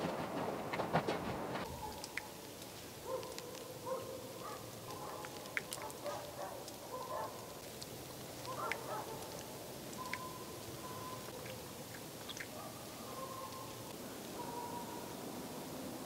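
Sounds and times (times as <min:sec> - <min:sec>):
faint animal calls: 0:10.0 - 0:15.2.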